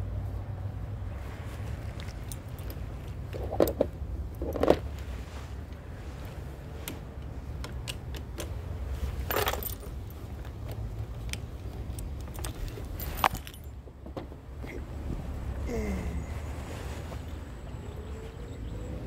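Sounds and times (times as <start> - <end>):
keys jangling: 9.3 - 10.1, 11.8 - 13.8
keys rattle: 9.3 - 10.2, 11.8 - 13.8.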